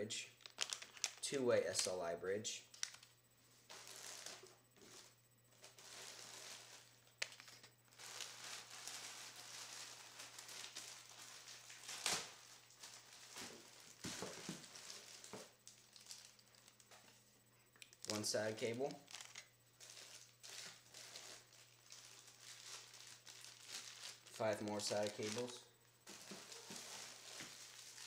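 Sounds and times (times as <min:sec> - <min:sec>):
plastic packaging crinkling: 0:00.4 - 0:01.9, 0:02.7 - 0:03.1, 0:03.7 - 0:17.2, 0:17.8 - 0:28.0.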